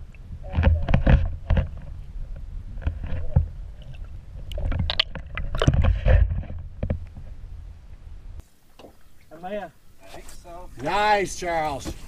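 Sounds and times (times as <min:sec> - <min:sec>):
muffled water sloshing: 0:00.7 - 0:07.6.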